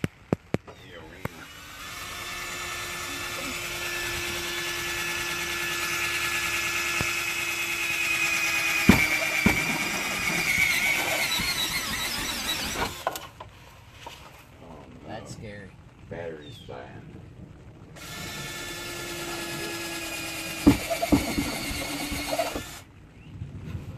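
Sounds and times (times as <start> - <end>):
cordless drill whining into metal: 0.7 - 13.3, 18.0 - 22.9
sharp knocks: 8.8 - 11.6, 20.4 - 22.8.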